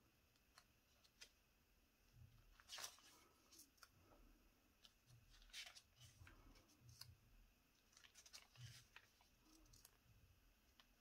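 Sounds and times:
paper pages rustling and turning: 0:00.4 - 0:01.5, 0:02.4 - 0:04.2, 0:04.8 - 0:07.2, 0:07.8 - 0:10.1.

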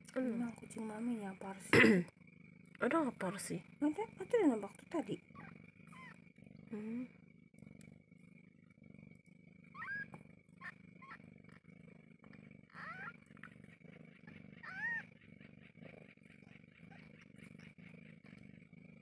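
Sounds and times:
cat purring: 0:00.0 - 0:19.0
kittens mewing: 0:02.8 - 0:07.1, 0:09.7 - 0:11.6, 0:12.2 - 0:18.5.

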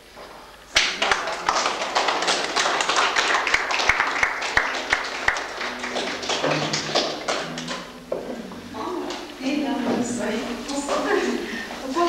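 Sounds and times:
guests clapping: 0:00.7 - 0:08.0
voices: 0:08.5 - 0:12.0.

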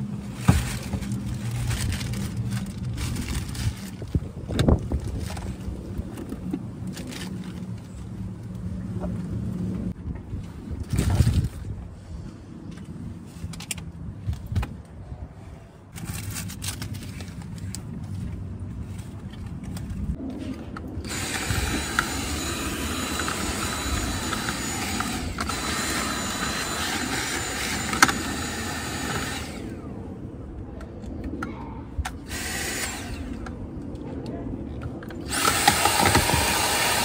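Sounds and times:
plastic bag rustling: 0:00.2 - 0:05.8
cordless vacuum whining: 0:21.0 - 0:29.9, 0:32.2 - 0:33.5, 0:35.2 - 0:37.0.

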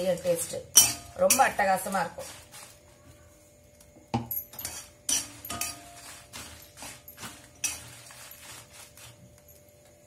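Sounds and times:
dry chillies rattling: 0:00.0 - 0:03.0, 0:04.6 - 0:09.6
metal spatula scraping a pan: 0:00.7 - 0:02.8, 0:04.5 - 0:09.2.

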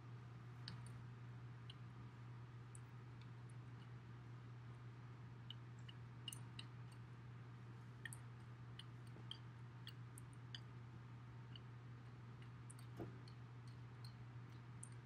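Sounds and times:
steady low hum: 0:00.0 - 0:15.0
faint small clicks: 0:00.6 - 0:01.0, 0:12.4 - 0:15.0.

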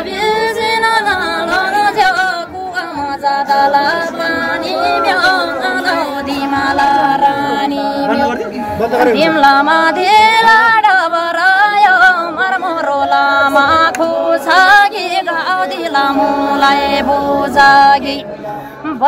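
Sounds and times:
woman singing ornamented melody: 0:00.0 - 0:08.4.

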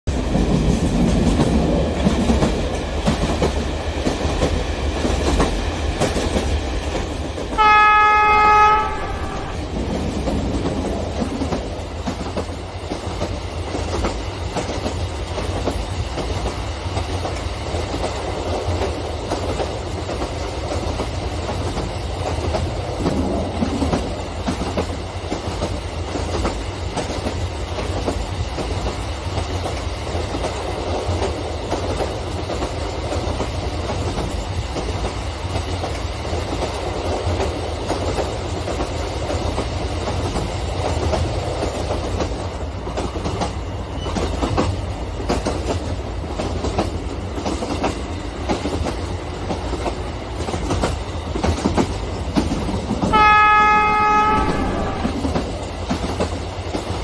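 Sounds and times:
clickety-clack of wheels: 0:00.1 - 0:07.6, 0:09.8 - 0:53.2, 0:55.1 - 0:57.0
model trains rumbling on tracks: 0:00.1 - 0:57.0
locomotive horn blast: 0:07.6 - 0:09.7, 0:53.1 - 0:55.3.

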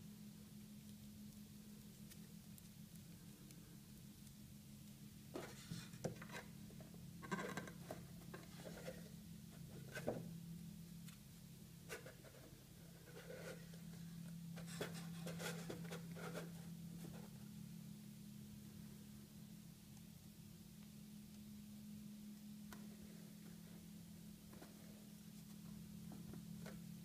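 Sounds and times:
steady low hum: 0:00.0 - 0:27.0
dough rubbing and scraping: 0:05.4 - 0:06.6, 0:07.3 - 0:10.2, 0:11.9 - 0:17.4.

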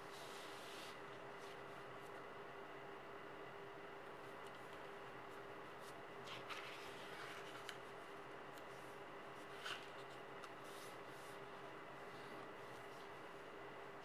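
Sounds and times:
paper rustling and crinkling: 0:06.2 - 0:07.9.

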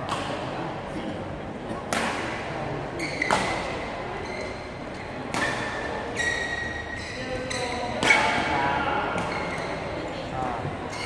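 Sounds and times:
racket hitting shuttlecock: 0:00.0 - 0:00.5, 0:01.8 - 0:02.5, 0:03.1 - 0:03.8, 0:05.3 - 0:05.9, 0:07.5 - 0:08.5
shoes squeaking on court floor: 0:03.0 - 0:08.1.

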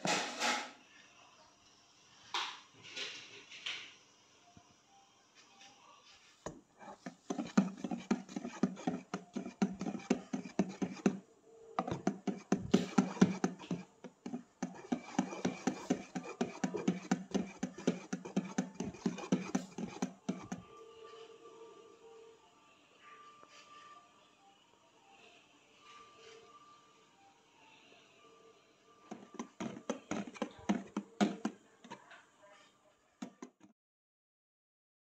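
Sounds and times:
whisk beating batter in bowl: 0:06.9 - 0:11.2, 0:11.8 - 0:20.6, 0:29.1 - 0:32.0, 0:33.2 - 0:33.7.

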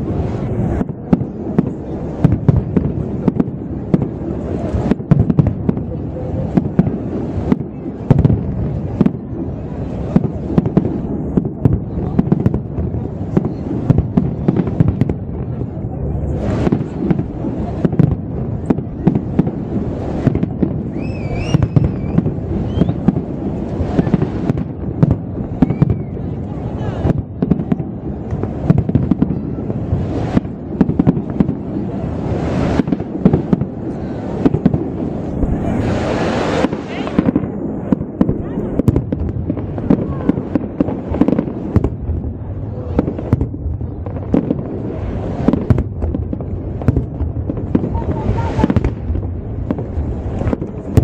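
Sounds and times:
wavering whistle: 0:20.9 - 0:23.0
deep rumble: 0:33.4 - 0:51.0.

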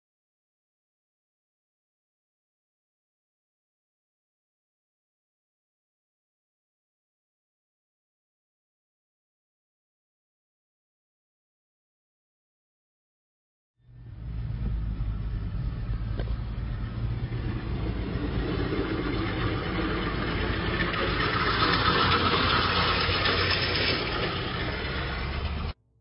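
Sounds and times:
car engine hum: 0:13.8 - 0:25.8
road noise rushing: 0:13.9 - 0:25.8.

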